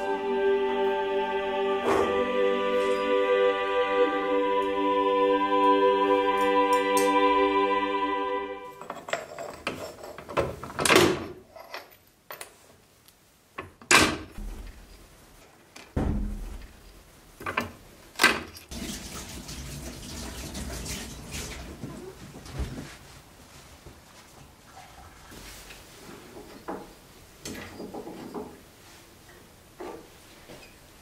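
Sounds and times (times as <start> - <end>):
sustained music chord: 0.0 - 8.8.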